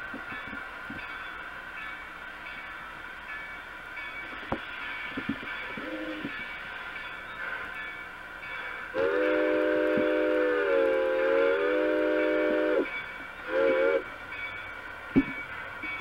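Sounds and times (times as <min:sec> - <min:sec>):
electronic train horn: 0:08.9 - 0:14.1.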